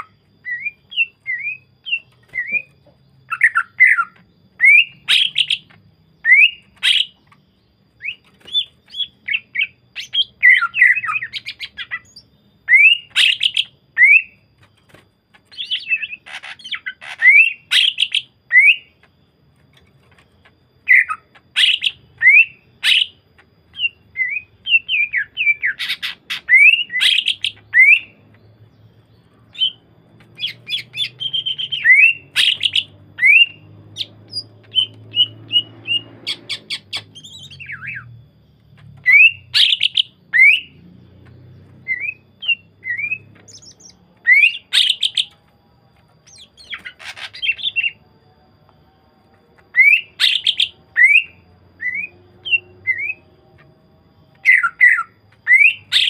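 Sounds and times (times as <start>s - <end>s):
bird singing sharp rising whistles: 30.4s - 38.2s, 49.7s - 53.4s, 54.3s - 56.0s.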